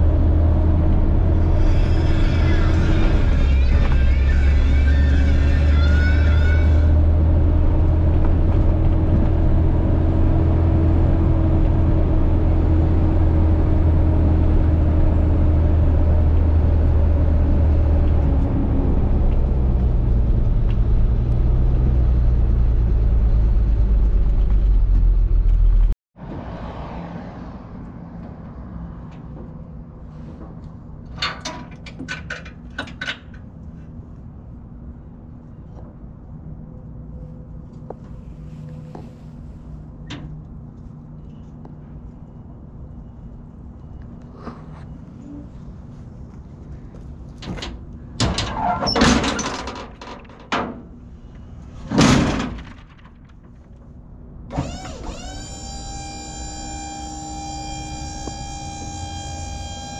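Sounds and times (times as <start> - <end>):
metal clanks and scrapes: 1.3 - 7.1
metal clanks and rattles: 30.4 - 33.7, 47.3 - 51.1, 51.8 - 53.8
hydraulic pump motor whine: 54.5 - 59.9.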